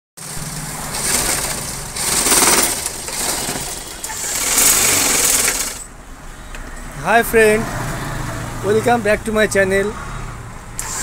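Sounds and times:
sewing machine stitching: 0.2s - 5.9s.

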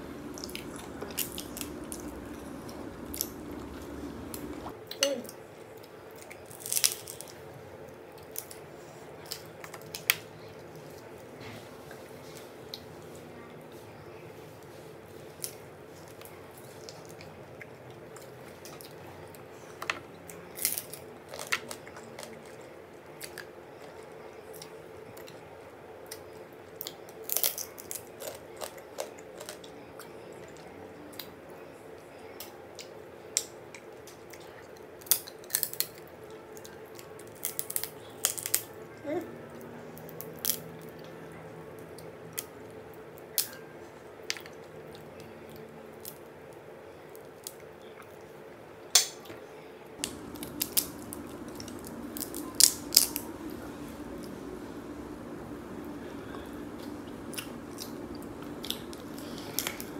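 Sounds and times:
wet sucking and chewing: 0.0s - 4.7s, 50.0s - 59.9s
crab shell cracking: 0.1s - 4.7s, 6.5s - 7.4s, 35.0s - 36.0s, 37.2s - 38.7s, 50.0s - 59.9s.

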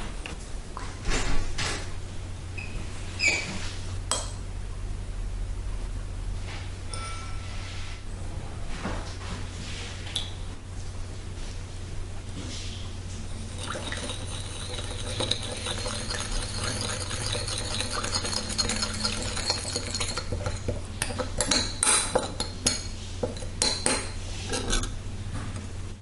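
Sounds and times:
metal spoon stirring in ceramic bowl: 13.3s - 25.0s.

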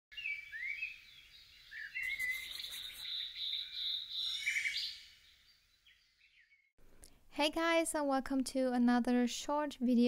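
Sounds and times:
birds chirping: 0.1s - 6.7s.

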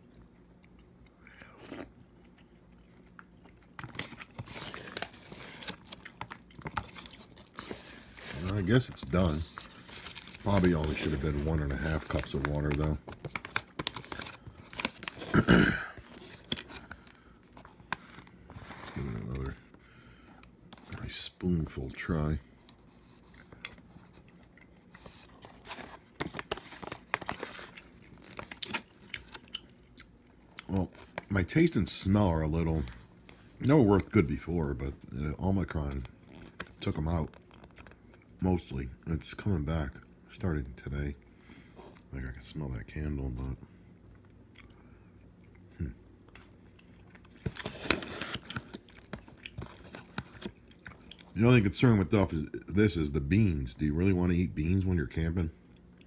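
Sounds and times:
foil pouch crinkling: 3.7s - 19.5s, 24.9s - 29.6s.

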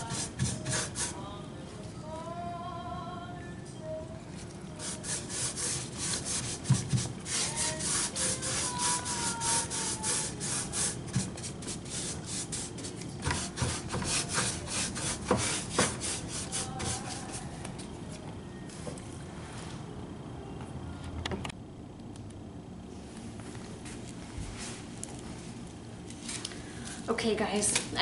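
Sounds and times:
paint brush scratchy strokes on wood: 4.8s - 17.5s.

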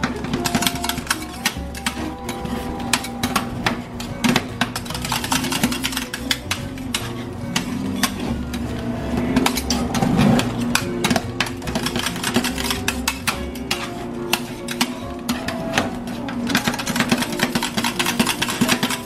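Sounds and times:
metal spatulas clacking on steel: 0.0s - 8.8s, 9.4s - 19.0s
background music with bass line: 0.0s - 19.0s.

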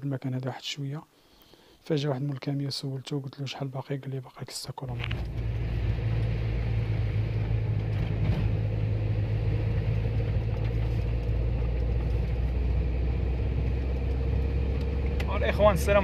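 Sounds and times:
car engine and road drone: 5.0s - 16.0s.

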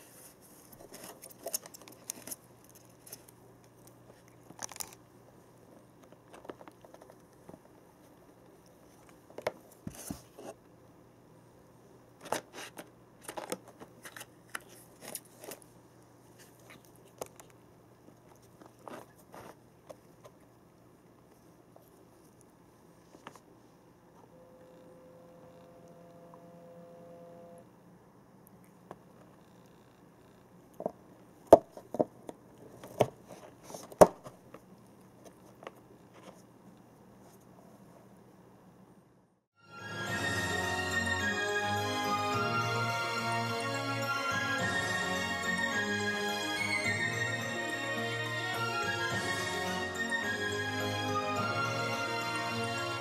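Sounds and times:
cat gnawing cardboard packaging: 0.6s - 5.1s, 16.4s - 20.5s.

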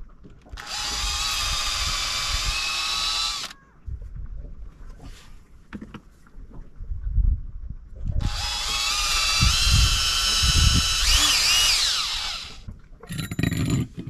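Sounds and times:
cordless drill motor whining: 0.6s - 3.6s, 8.2s - 12.6s.

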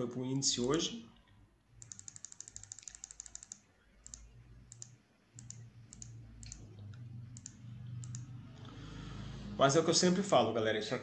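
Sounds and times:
keyboard and mouse clicks: 1.8s - 8.4s.

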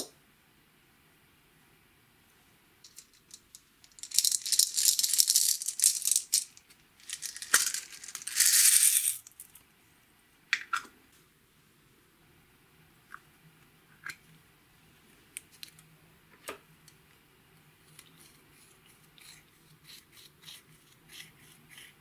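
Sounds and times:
beads rattling in plastic container: 2.9s - 9.4s.

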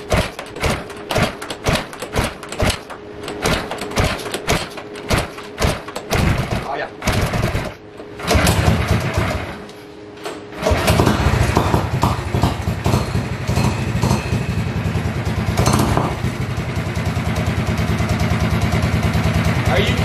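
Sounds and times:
recoil starter pulls: 0.0s - 9.6s
small engine running: 0.0s - 9.6s, 10.6s - 20.0s.

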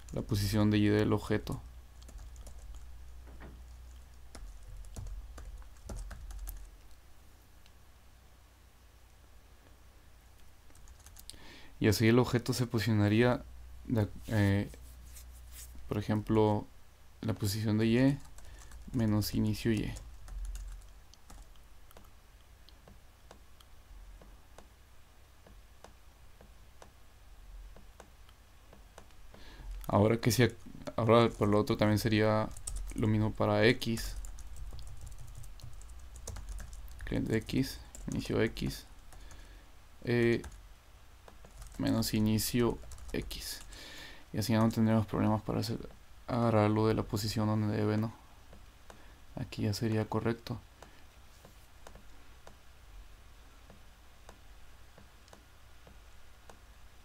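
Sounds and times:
low steady hum: 0.0s - 57.0s
keyboard and mouse clicks: 1.4s - 7.0s, 20.0s - 24.7s, 51.8s - 52.6s, 55.0s - 56.6s
typing on computer keyboard: 2.0s - 2.9s, 3.7s - 6.9s, 10.7s - 11.4s, 18.2s - 22.1s, 32.5s - 33.0s, 34.1s - 37.1s, 41.3s - 41.9s, 42.8s - 43.7s.

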